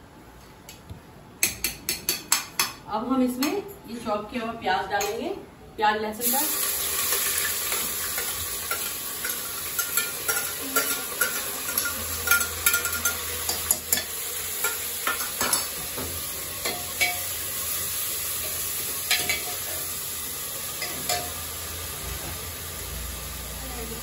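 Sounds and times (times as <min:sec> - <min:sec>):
onions sizzling in oil: 0:06.2 - 0:24.0.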